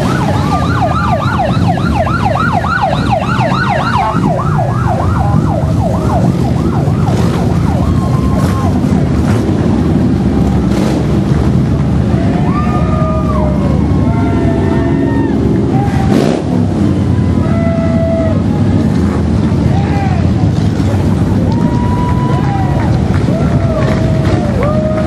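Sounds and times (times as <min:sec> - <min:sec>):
siren yelping: 0:00.0 - 0:09.1
motorcycles rumbling past: 0:00.0 - 0:19.7.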